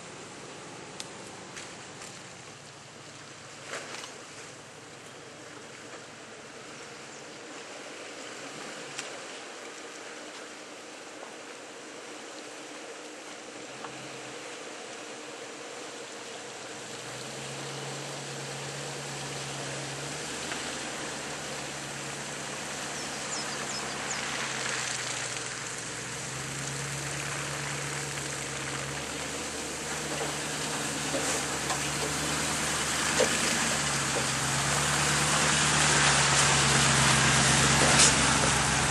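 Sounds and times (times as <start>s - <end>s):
four-wheel drive engine labouring: 13.5s - 38.9s.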